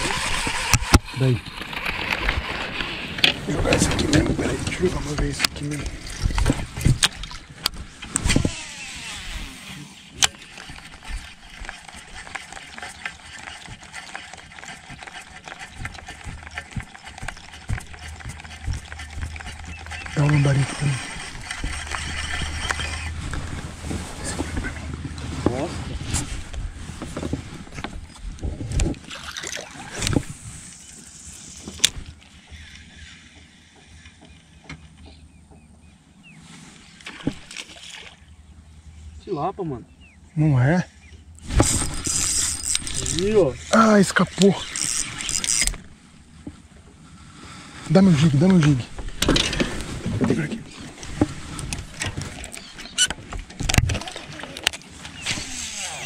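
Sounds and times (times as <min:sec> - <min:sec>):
fishing gear knocks and clicks: 0:03.1 - 0:08.6, 0:10.1 - 0:25.5, 0:41.4 - 0:46.6, 0:48.2 - 0:56.0
gear knocking and clattering: 0:10.2 - 0:23.7.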